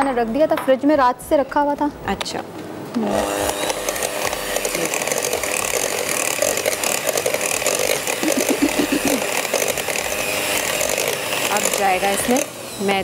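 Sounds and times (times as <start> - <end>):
electric mixer running: 3.0 - 13.0.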